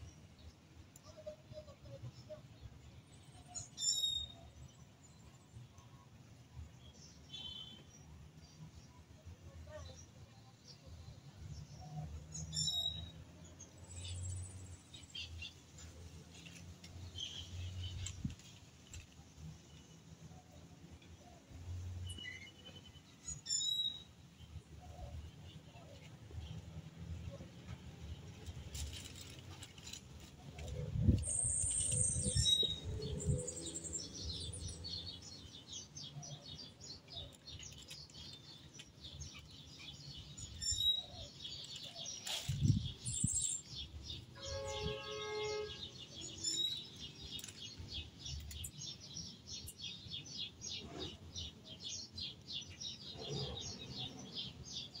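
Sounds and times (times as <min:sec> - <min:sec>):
birds chirping: 0:30.6 - 0:55.0.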